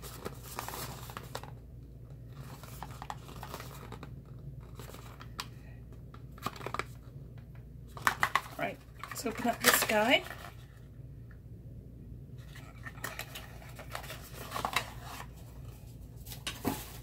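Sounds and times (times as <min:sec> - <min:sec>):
steady low hum: 0:10.2 - 0:17.0
cardboard box rustling: 0:13.6 - 0:17.0.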